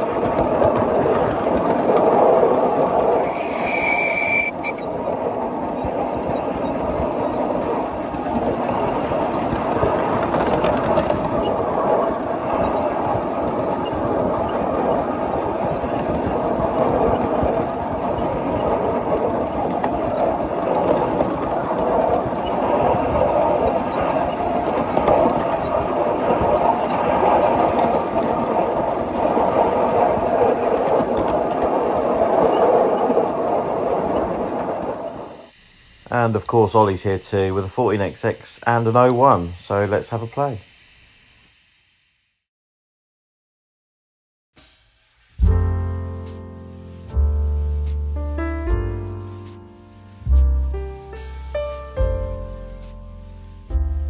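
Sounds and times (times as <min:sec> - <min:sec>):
working steam: 0:00.0 - 0:41.7, 0:44.6 - 0:45.5
wheels on rail: 0:00.0 - 0:42.4.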